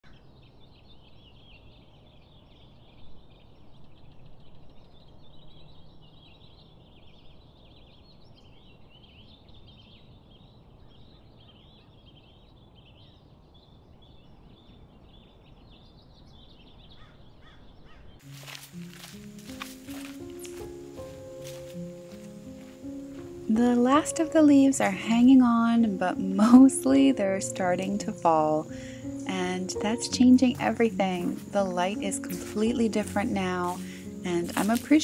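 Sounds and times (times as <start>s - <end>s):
small birds chirping: 0.0s - 35.0s
low background hiss: 20.0s - 35.0s.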